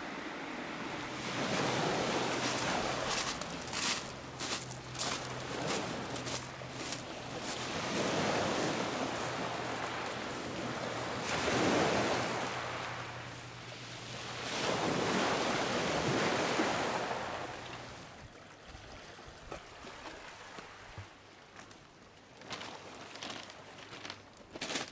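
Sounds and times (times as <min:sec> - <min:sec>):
waves washing up a pebble beach: 0:01.0 - 0:13.3, 0:14.0 - 0:17.9.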